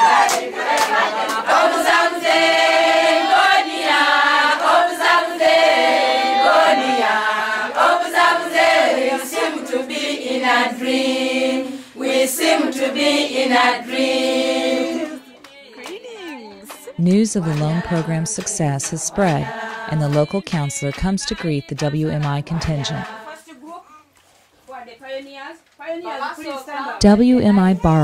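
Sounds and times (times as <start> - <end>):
hand claps: 0.0 - 1.7, 15.4 - 23.2
women singing in chorus: 0.0 - 23.7.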